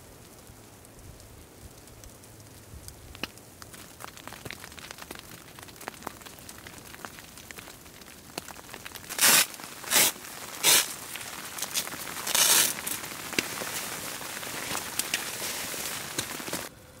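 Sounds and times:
faint ticking and crackling: 0:00.0 - 0:16.7
footsteps crunching in snow: 0:09.1 - 0:16.7.

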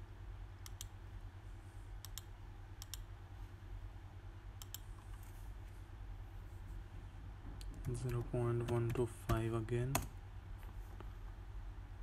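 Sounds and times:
faint low hum: 0:00.0 - 0:12.0
computer mouse clicking: 0:00.6 - 0:00.9, 0:02.0 - 0:03.1, 0:04.6 - 0:05.2.

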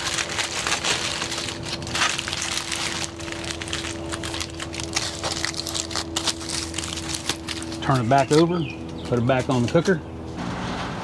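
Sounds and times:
wrapping material crinkling: 0:00.0 - 0:08.4
steady hum: 0:00.0 - 0:11.0.

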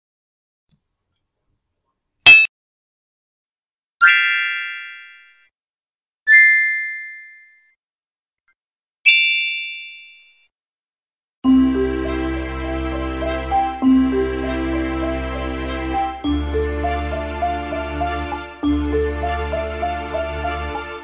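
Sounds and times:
short sharp blip: 0:02.3 - 0:02.5.

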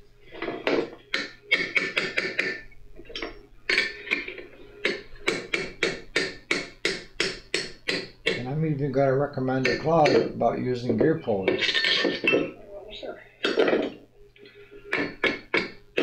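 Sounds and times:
hammer striking metal punch: 0:04.8 - 0:08.5.

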